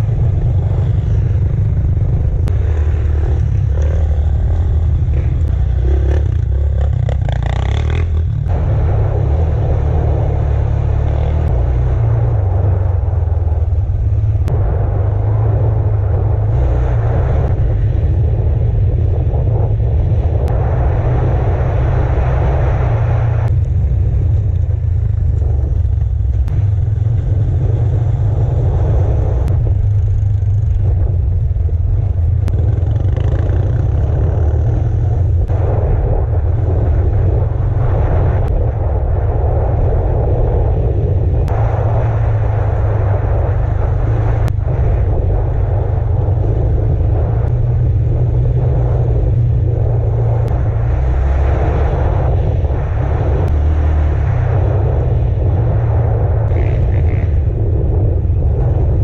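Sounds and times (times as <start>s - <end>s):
heavy low rumble: 0.0s - 59.0s
off-road vehicle engine revving: 2.1s - 13.1s, 45.9s - 58.0s.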